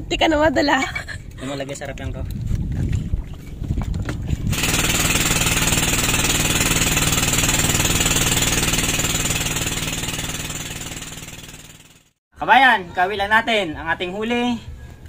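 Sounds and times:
small engine running: 4.5 - 12.2.

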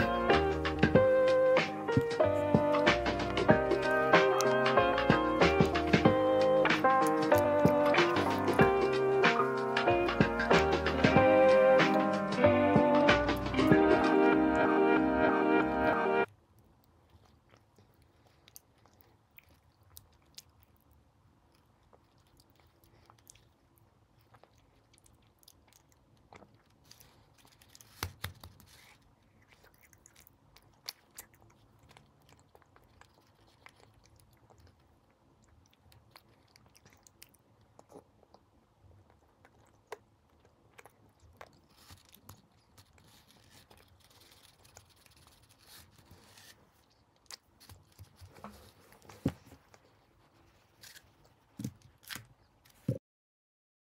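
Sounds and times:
chewing chocolate sweet: 0.0 - 14.7, 16.2 - 52.9.

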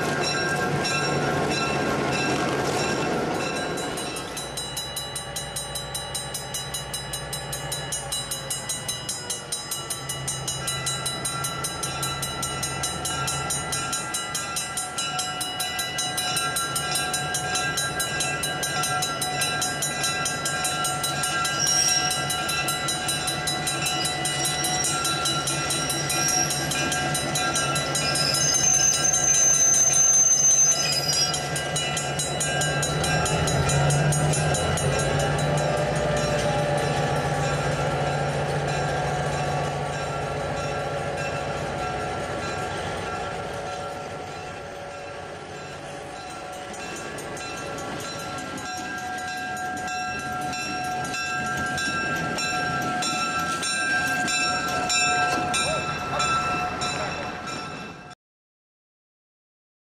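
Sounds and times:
train wheels rolling: 0.0 - 58.0
diesel locomotive engine: 0.0 - 58.2
high squeals: 21.4 - 22.2, 27.8 - 31.5.

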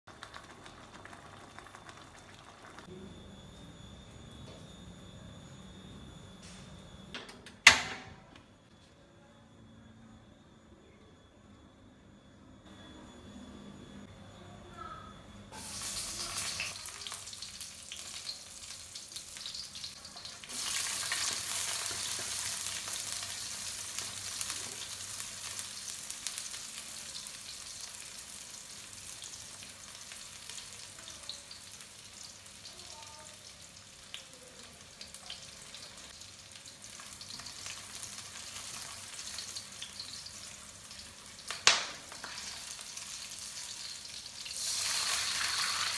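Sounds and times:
food sizzling in hot oil: 15.5 - 45.9.

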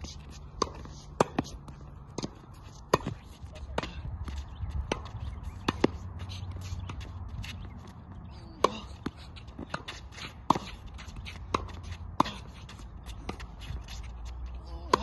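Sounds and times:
tennis ball struck by rackets: 0.5 - 4.0, 4.9 - 6.0, 11.5 - 12.5.

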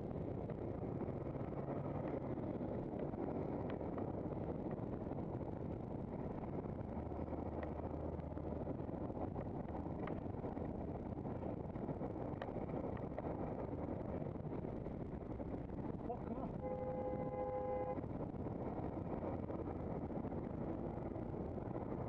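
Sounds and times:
tyre and wind rumble: 0.0 - 22.0
light ticks: 7.5 - 8.4, 12.4 - 13.3.

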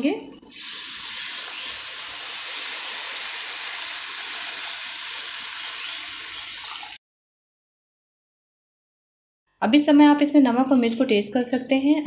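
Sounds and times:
water sizzling in hot oil: 0.5 - 7.0.

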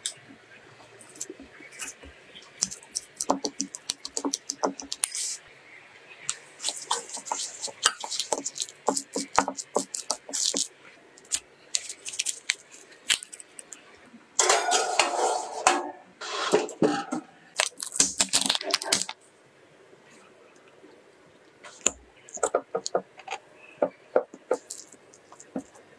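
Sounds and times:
paper baking cups clicking: 1.1 - 5.2, 6.6 - 13.8, 17.6 - 19.2, 21.8 - 25.9
baking tray scraping into oven: 14.4 - 17.1.

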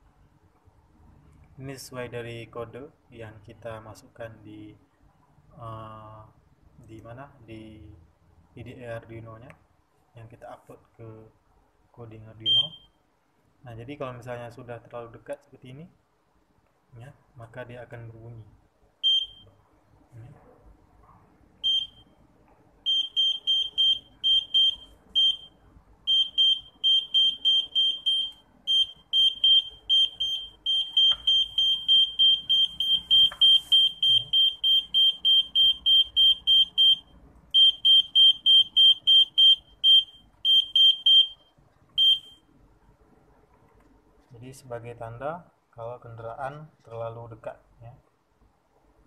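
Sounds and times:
high-pitched buzzer beeps: 19.0 - 19.5, 21.6 - 22.1, 22.9 - 42.4.

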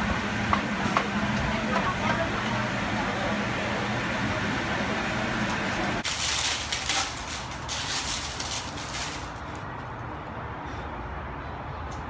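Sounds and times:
busy market stall din: 0.0 - 12.0
plastic wrap crinkling: 6.0 - 9.6.

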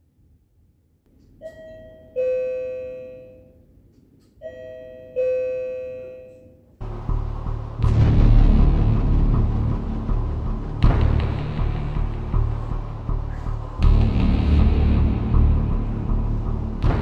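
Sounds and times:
two-tone doorbell chime: 1.4 - 3.6, 4.4 - 6.6
loud dense rumbling: 6.8 - 17.0.

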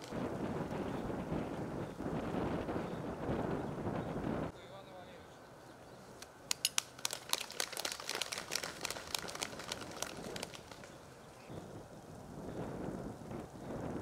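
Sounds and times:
people clapping: 6.5 - 11.0.

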